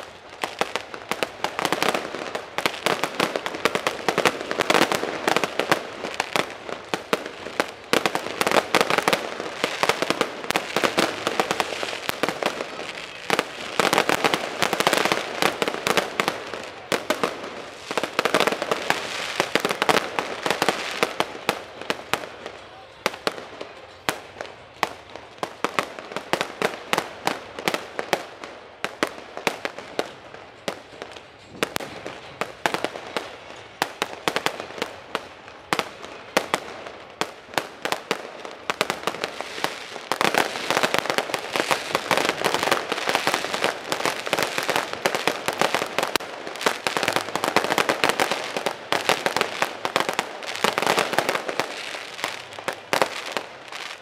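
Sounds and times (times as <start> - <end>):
fireworks bursting and crackling: 0.0 - 54.0.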